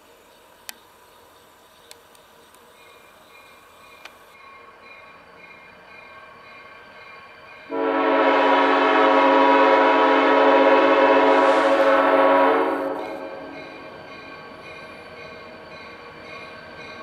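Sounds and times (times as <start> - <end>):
faint approaching locomotive: 0.0 - 17.0
locomotive air horn chord: 7.7 - 13.6.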